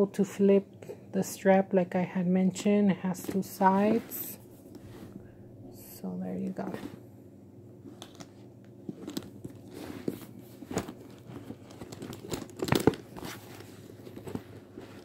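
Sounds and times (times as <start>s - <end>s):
leather handbag rustling: 3.2s - 5.1s, 7.9s - 15.0s.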